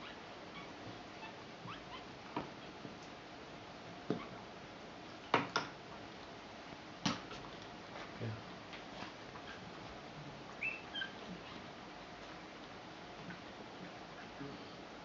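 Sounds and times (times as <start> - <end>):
puppies squeaking: 0.0 - 2.7, 10.6 - 11.6.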